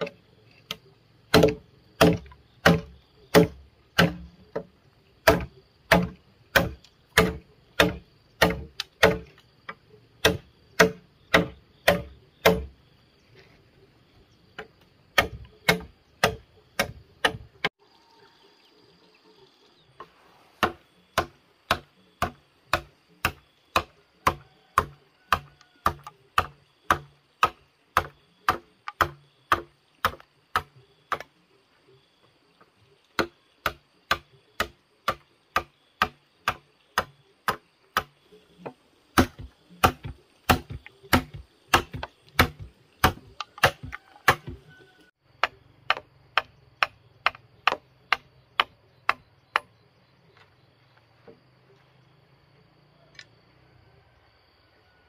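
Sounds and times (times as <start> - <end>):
hand tool chopping: 0.0 - 9.4, 10.2 - 12.7, 14.6 - 17.7, 20.6 - 31.3, 33.2 - 44.7, 45.4 - 49.7.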